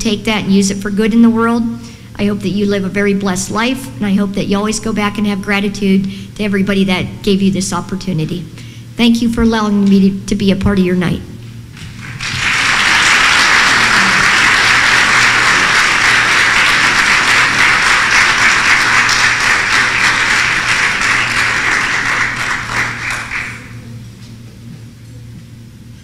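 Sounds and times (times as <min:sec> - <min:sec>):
crowd applauding: 0:11.8 - 0:23.8.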